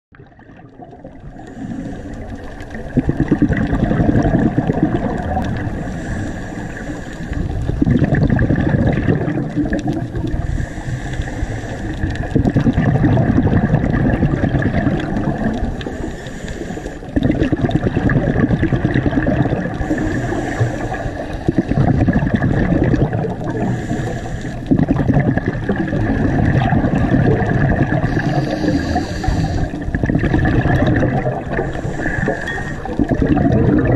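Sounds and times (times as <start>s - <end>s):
scuba regulator breathing: 1.3s - 7.9s, 9.7s - 12.6s, 15.0s - 17.6s, 19.1s - 25.0s, 26.0s - 33.6s.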